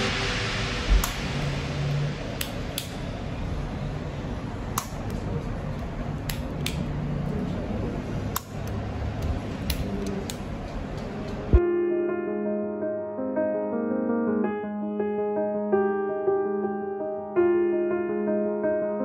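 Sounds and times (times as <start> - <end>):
steady hiss: 0.0 - 4.6.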